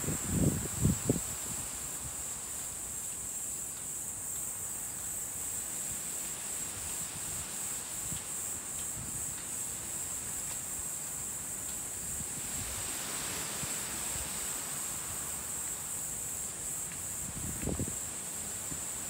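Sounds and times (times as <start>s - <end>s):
wind rumble: 0.0s - 1.8s
insects droning: 0.0s - 19.0s.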